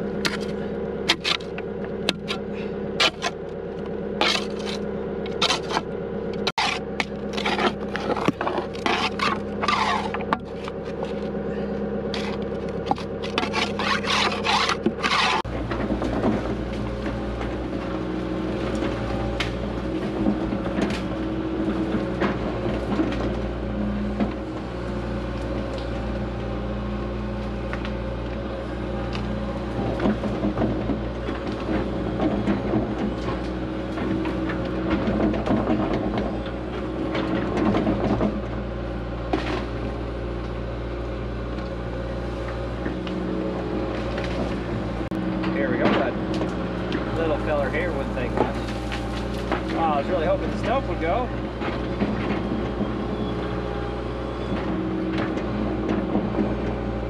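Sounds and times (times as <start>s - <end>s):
tracks scraping and squealing: 0.0s - 26.8s, 41.8s - 56.9s
excavator engine running: 0.0s - 57.0s.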